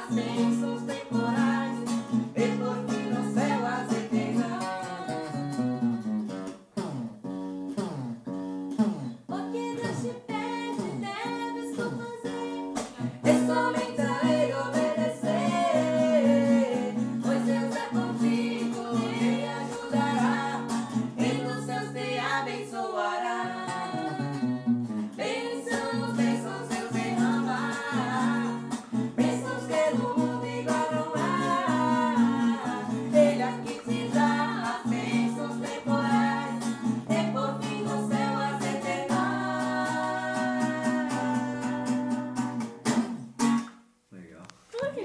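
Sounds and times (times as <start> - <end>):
man and woman singing a hymn: 0.0 - 6.1, 13.0 - 42.6
strummed acoustic guitar: 0.0 - 43.9.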